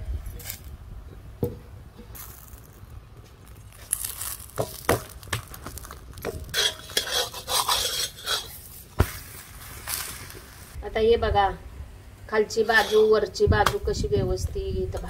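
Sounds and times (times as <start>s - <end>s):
metal spatula scraping griddle: 6.5s - 8.9s, 12.6s - 13.2s.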